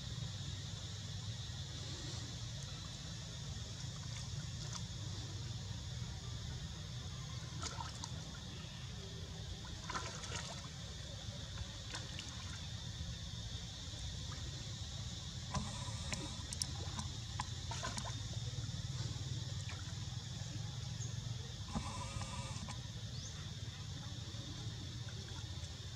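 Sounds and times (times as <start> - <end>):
water sloshing and lapping: 2.3 - 6.4, 7.1 - 25.9
small splashes: 3.7 - 5.5, 7.3 - 13.2, 14.0 - 14.8, 15.4 - 20.6.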